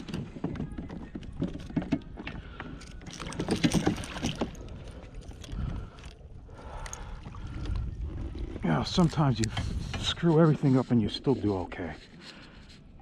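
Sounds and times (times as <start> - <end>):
tackle clicking against boat: 0.0 - 7.8.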